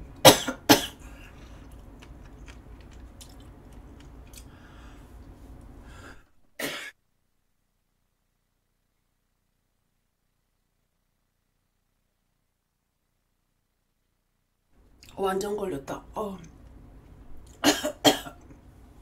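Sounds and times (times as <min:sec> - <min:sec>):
low room hum: 0:00.0 - 0:19.0
woman coughing: 0:00.2 - 0:01.0, 0:06.6 - 0:06.9, 0:17.6 - 0:18.4.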